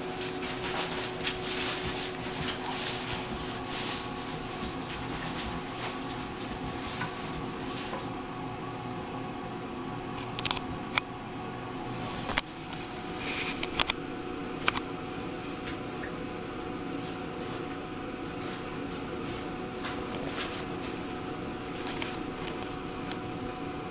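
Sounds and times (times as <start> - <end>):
puppies moving on floor: 0.0 - 8.2, 15.2 - 23.6
steady hum: 0.0 - 23.9.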